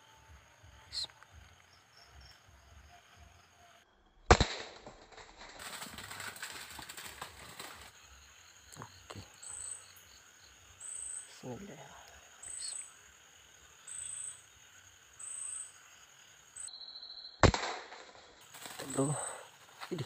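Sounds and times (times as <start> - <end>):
crickets chirping: 0.0 - 20.0
air rifle shot: 4.3 - 5.4, 17.4 - 18.2
rustling and scuffling: 5.5 - 7.9.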